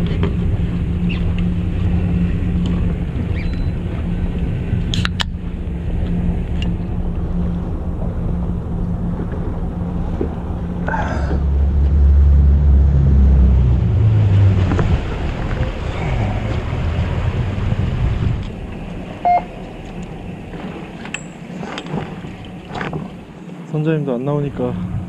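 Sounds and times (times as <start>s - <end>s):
boat engine running: 0.0s - 25.0s
water rushing past hull: 0.0s - 25.0s
short beep: 19.2s - 19.6s.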